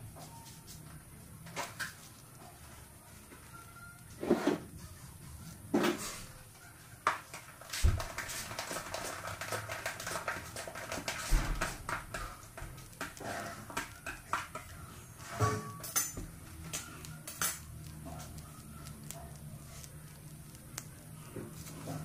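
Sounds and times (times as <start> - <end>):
hands tapping and rustling bags: 7.1 - 14.8.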